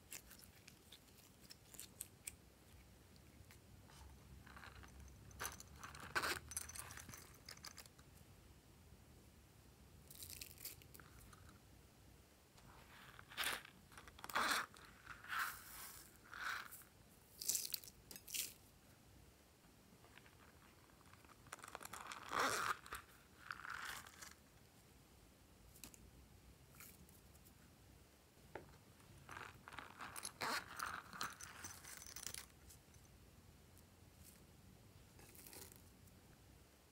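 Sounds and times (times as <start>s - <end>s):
crunchy rattle of sprinkles: 10.1s - 11.6s, 12.9s - 18.7s, 29.2s - 33.1s, 35.1s - 36.1s.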